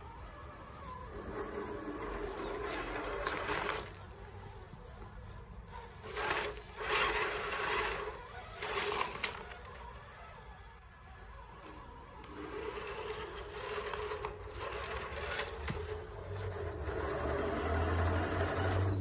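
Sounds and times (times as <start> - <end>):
tyres crunching on gravel: 1.5 - 4.8, 5.9 - 9.8, 11.9 - 19.0.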